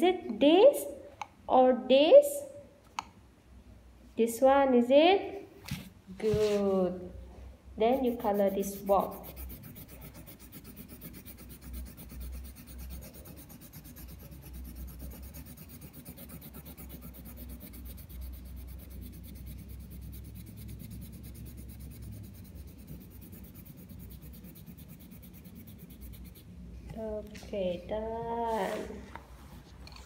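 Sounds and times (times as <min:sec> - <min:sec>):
pencil shading on paper: 0:07.8 - 0:26.5.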